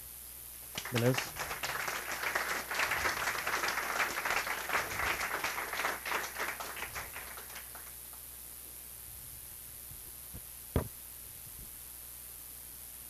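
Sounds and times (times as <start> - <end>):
audience applauding: 0.7 - 8.0.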